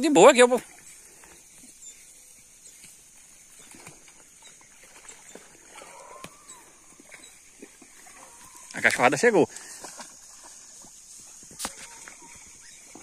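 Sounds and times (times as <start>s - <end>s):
small ticks and rustles: 0.6s - 13.0s
faint rising cry: 5.8s - 7.0s.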